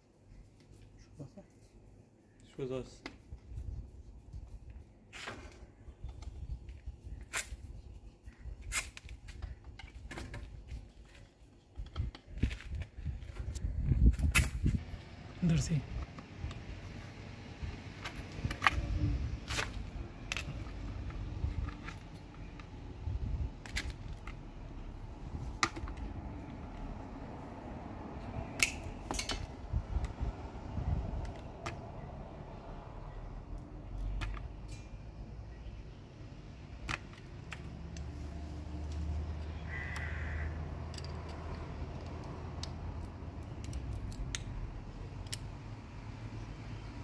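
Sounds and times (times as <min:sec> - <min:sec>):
steady low rumble: 0:05.7 - 0:37.1.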